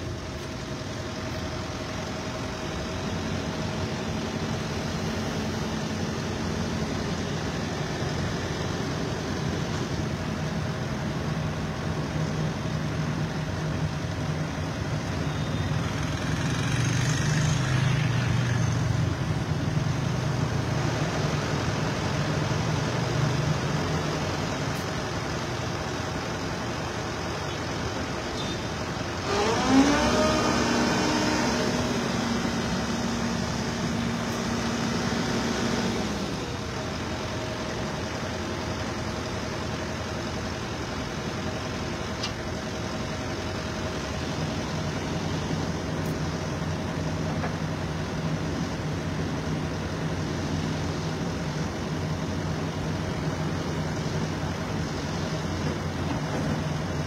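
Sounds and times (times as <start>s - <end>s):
excavator diesel engine: 0.0s - 57.0s.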